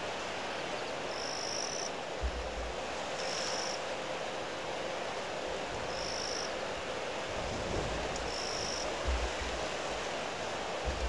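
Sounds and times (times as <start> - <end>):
gusts buffeting microphone: 6.7 - 11.0
wind blowing over microphone: 7.2 - 11.0.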